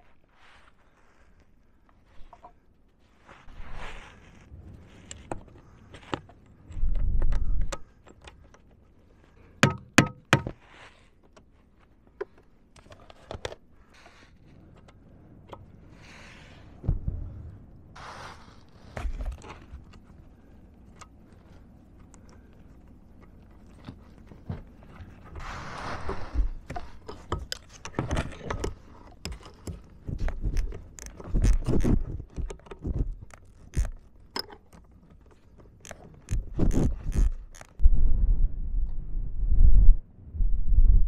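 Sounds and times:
clothing rustle: 0.0 - 6.9
dull low thump: 16.8 - 17.9.

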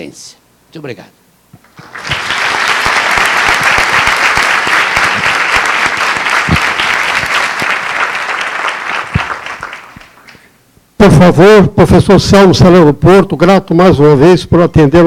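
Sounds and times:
audience applauding: 1.7 - 10.5.

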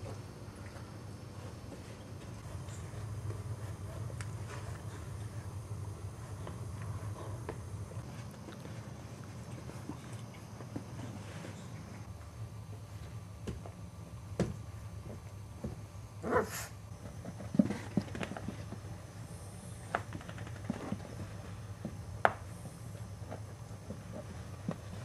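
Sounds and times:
paws tapping and scuffling on carpet: 0.0 - 11.8, 16.5 - 19.1, 19.9 - 25.0.

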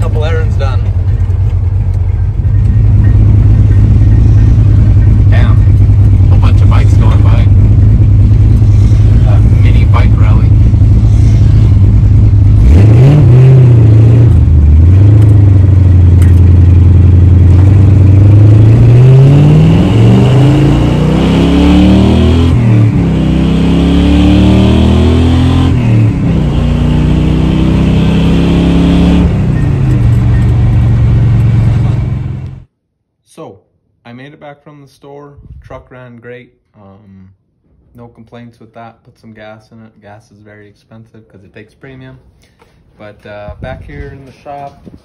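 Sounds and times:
truck engine accelerating: 0.0 - 32.7.

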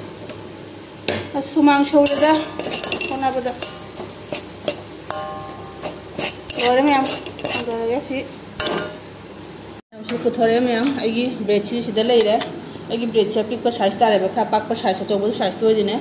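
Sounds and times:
person speaking: 1.4 - 4.0, 6.0 - 8.3
metal spatula scraping wok: 2.0 - 9.2.

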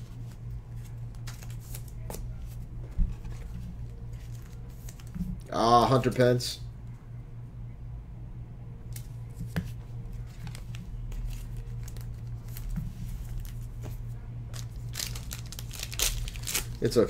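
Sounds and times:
steady low hum: 0.0 - 17.0
cards rustling and clicking: 0.2 - 5.5, 9.0 - 17.0.

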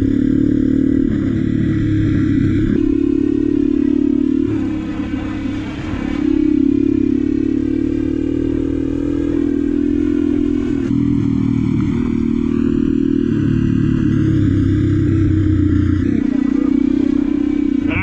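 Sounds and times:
small engine at high revs: 16.0 - 18.0.

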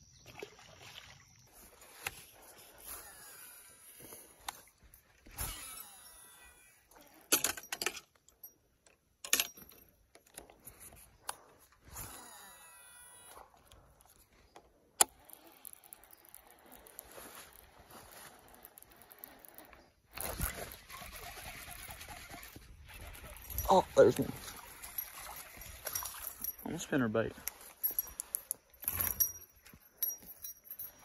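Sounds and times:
fishing reel clicks and rattles: 5.3 - 8.5, 15.0 - 31.0.

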